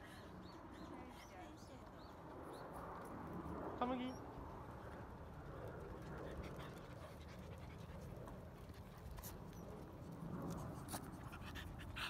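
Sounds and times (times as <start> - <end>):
small dogs panting: 4.2 - 12.0.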